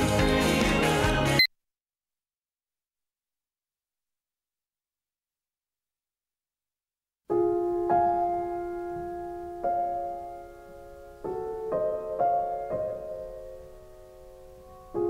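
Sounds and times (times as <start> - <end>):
piano chords: 7.3 - 15.0.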